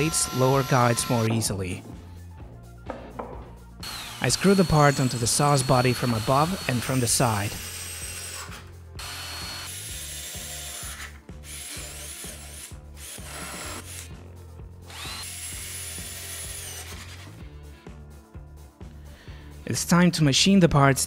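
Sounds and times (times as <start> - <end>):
drill driving screws into wood: 0.0 - 1.3, 3.8 - 14.1, 14.9 - 17.4.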